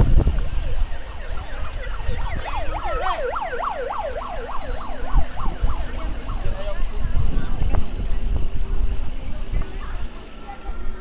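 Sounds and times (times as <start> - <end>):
electronic siren yelping: 1.0 - 7.0.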